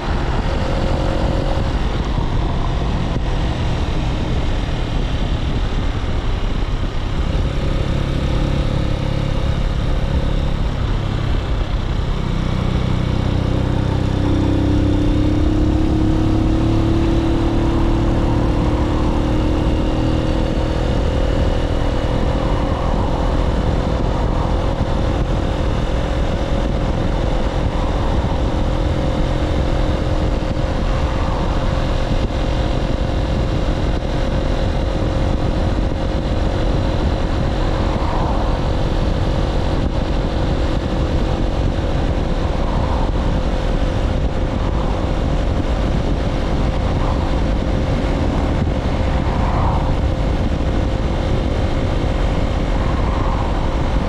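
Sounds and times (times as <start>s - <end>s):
motorcycle engine running: 0.0s - 54.0s
wind rushing over microphone: 0.0s - 54.0s.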